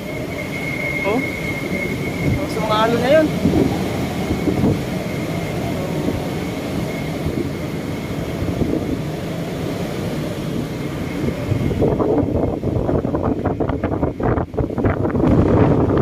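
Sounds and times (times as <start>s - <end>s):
strong wind buffeting microphone: 0.0s - 16.0s.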